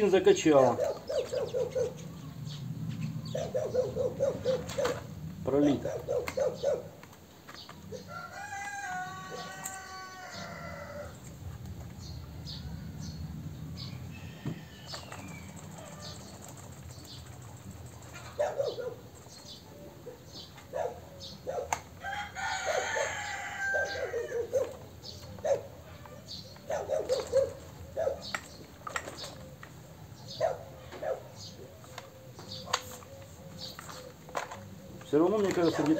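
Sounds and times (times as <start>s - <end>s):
rooster crowing: 8.0s - 11.2s, 13.8s - 15.2s, 22.0s - 24.5s
chainsaw handling clicks and knocks: 26.0s - 29.8s, 31.9s - 35.9s.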